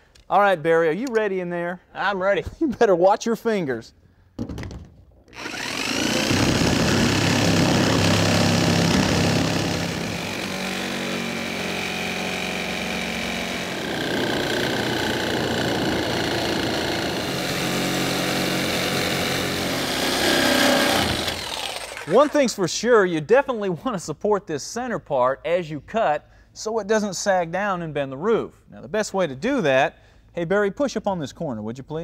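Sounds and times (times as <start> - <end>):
jigsaw cutting sheet metal: 5.3 - 22.4.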